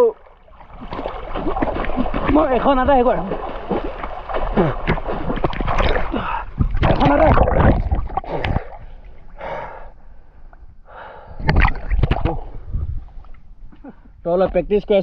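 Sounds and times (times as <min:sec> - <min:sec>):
water splashing from swimming: 0:00.0 - 0:09.7
breathy gasps: 0:06.0 - 0:06.6, 0:09.4 - 0:11.4.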